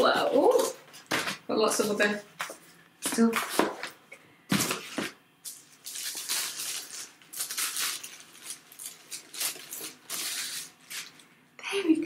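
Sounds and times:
plastic bag crinkling: 4.5s - 11.3s.

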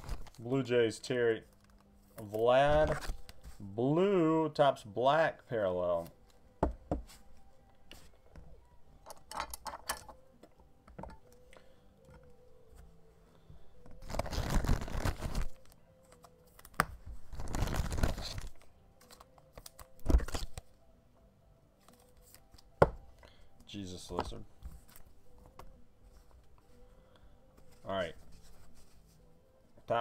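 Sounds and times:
cards rustling slides: 13.8s - 20.6s.

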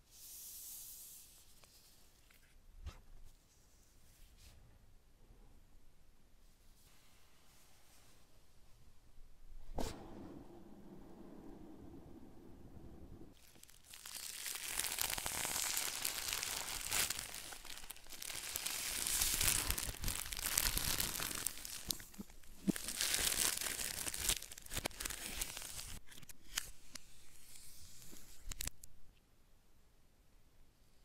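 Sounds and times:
plastic wrap tearing and crinkling: 13.4s - 26.6s
sharp plastic crackles: 13.4s - 26.6s.

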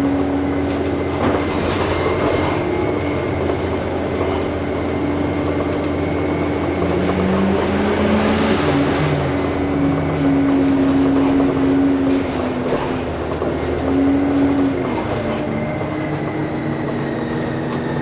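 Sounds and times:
bus engine drone: 0.0s - 18.0s.

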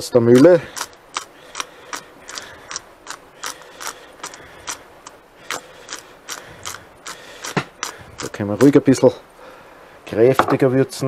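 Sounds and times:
pepper mill grinding: 0.3s - 8.9s.

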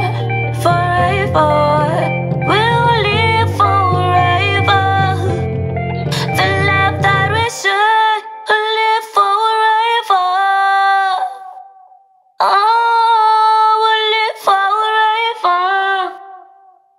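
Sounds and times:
bass and backing music: 0.0s - 7.5s
person singing long wordless notes: 0.0s - 16.8s.

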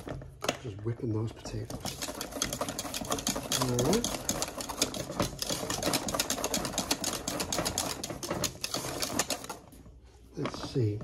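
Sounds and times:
whisk clicking against metal pot: 1.5s - 9.8s.

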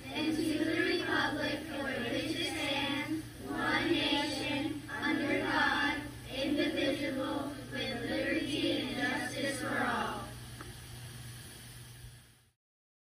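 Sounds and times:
children reciting in unison: 0.0s - 10.3s.

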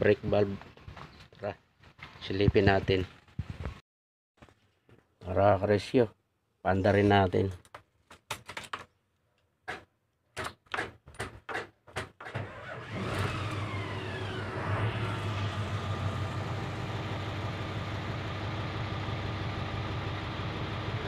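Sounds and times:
truck engine cranking: 12.2s - 17.8s
falling whine: 12.8s - 21.0s
truck engine idling: 13.5s - 21.0s.

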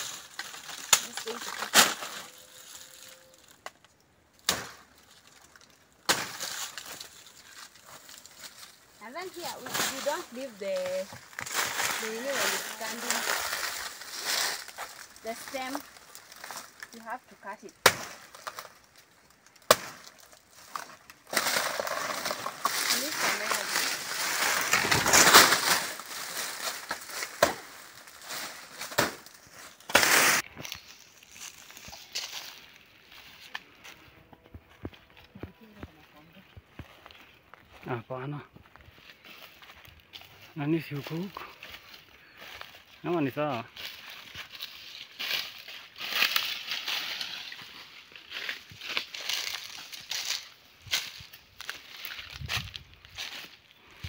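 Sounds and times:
leaves crackling and rustling: 0.0s - 54.0s
machete chopping plant stem: 4.4s - 4.8s, 6.1s - 6.5s, 17.8s - 18.6s, 19.6s - 20.1s, 28.9s - 29.3s, 29.9s - 30.4s
banana stalk cracking: 17.8s - 32.4s.

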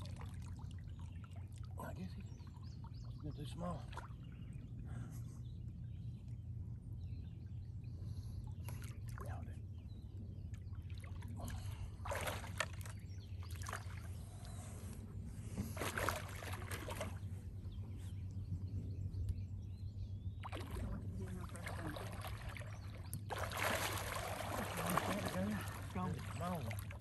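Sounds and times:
water sloshing and splashing: 0.0s - 4.8s, 8.5s - 9.6s, 10.5s - 14.7s, 15.4s - 17.5s, 20.4s - 27.0s
steady low hum: 0.0s - 27.0s.

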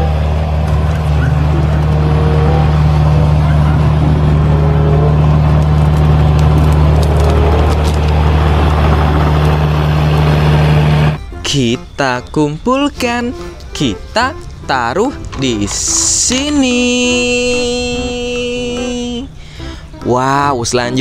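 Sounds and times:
excavator diesel engine: 0.0s - 21.0s
wood cracking: 5.3s - 11.2s.

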